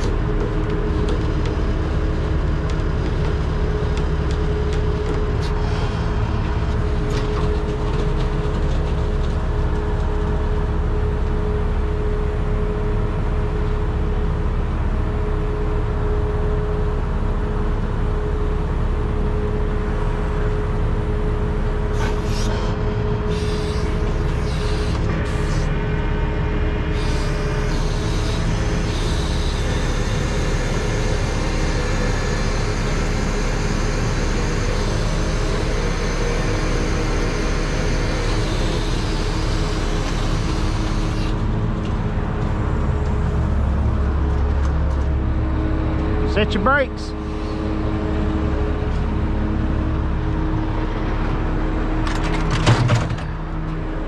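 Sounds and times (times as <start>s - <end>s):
diesel truck engine running: 0.0s - 54.0s
winch whine: 20.5s - 54.0s.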